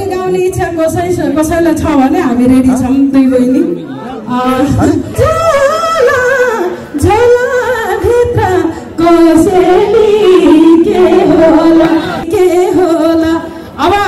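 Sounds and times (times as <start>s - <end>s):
woman singing: 4.3s - 14.0s.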